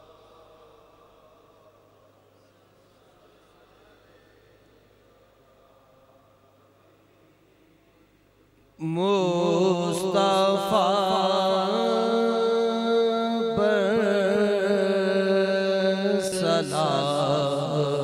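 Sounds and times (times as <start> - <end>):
steady held drone: 0.0 - 7.9
man singing: 8.8 - 18.0.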